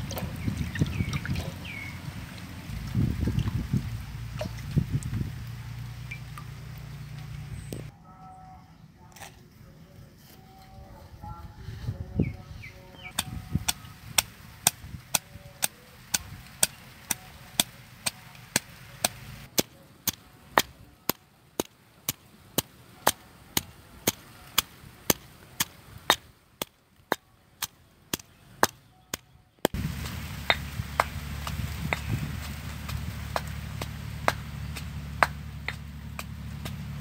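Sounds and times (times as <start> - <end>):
low background rumble: 0.0 - 7.9, 29.7 - 37.0.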